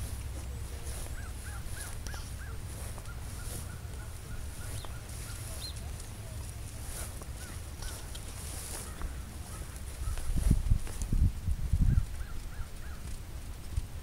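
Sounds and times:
birds calling: 0:00.0 - 0:11.0, 0:11.8 - 0:13.1
steady low rumble: 0:00.0 - 0:14.0.

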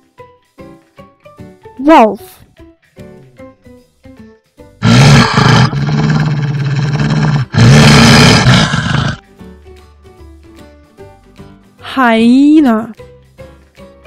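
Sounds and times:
soft background music: 0:00.0 - 0:05.1, 0:09.2 - 0:14.0
wolf growling: 0:04.8 - 0:09.2.

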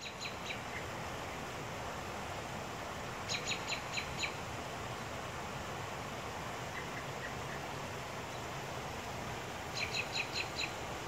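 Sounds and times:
songbird chirping: 0:00.0 - 0:00.9, 0:03.2 - 0:04.4, 0:09.7 - 0:10.9
fast-flowing creek: 0:00.0 - 0:11.0.

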